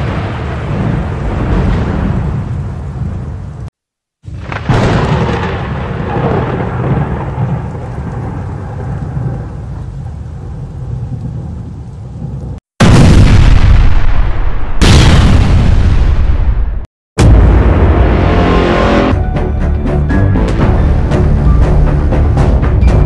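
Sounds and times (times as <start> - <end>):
rolling thunder: 0.0 - 3.7, 4.3 - 19.2
rain: 0.0 - 14.8.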